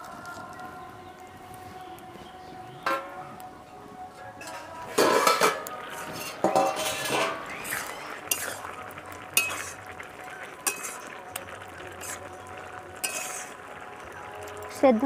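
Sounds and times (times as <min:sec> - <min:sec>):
metal lid clattering: 0:04.4 - 0:07.4
metal spoon stirring and scraping pot: 0:04.4 - 0:08.8, 0:09.4 - 0:14.1
spoon clinking against pot rim: 0:09.4 - 0:09.7, 0:10.6 - 0:11.0, 0:13.0 - 0:13.5.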